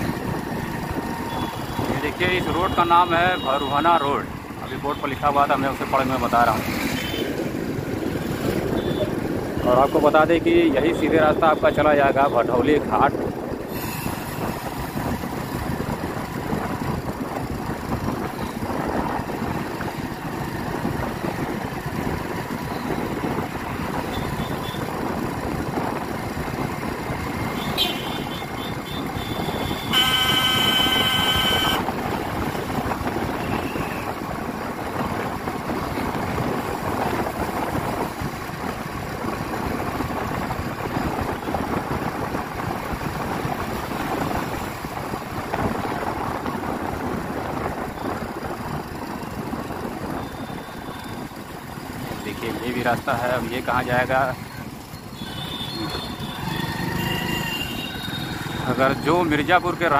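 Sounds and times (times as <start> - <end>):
road noise: 0.0 - 59.9
motorcycle engine: 14.1 - 52.4, 54.4 - 59.1
vehicle horn: 27.6 - 31.9, 55.2 - 58.2.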